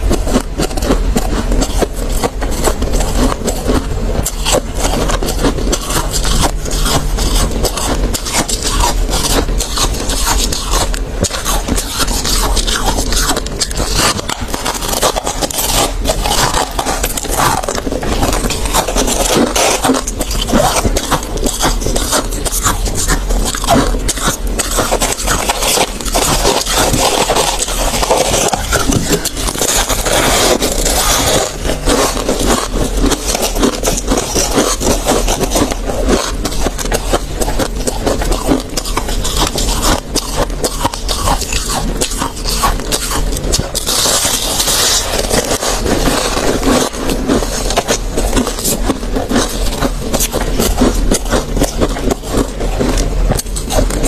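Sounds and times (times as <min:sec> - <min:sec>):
chewing frost crunches: 0:00.0 - 0:54.0.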